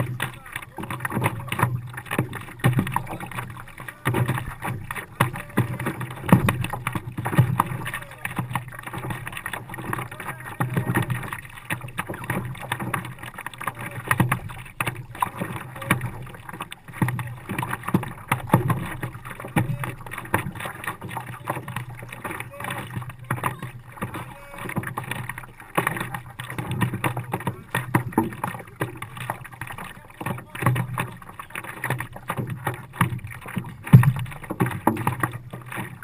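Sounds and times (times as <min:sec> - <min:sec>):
paddle splashes: 0:00.0 - 0:36.0
water lapping against paddleboard: 0:00.0 - 0:36.0.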